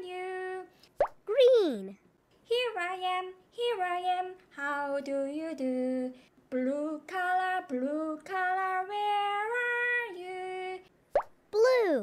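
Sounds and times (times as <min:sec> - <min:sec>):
woman singing: 0:00.0 - 0:00.8, 0:02.5 - 0:10.9.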